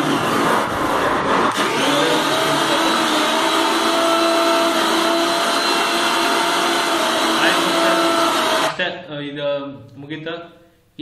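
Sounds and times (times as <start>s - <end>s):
mixer grinder motor whining: 0.0s - 8.8s.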